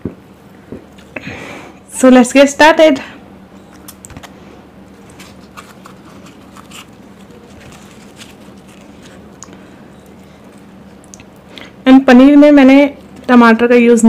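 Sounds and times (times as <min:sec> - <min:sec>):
low steady hum: 0:00.0 - 0:14.0
hands handling food: 0:03.7 - 0:11.4.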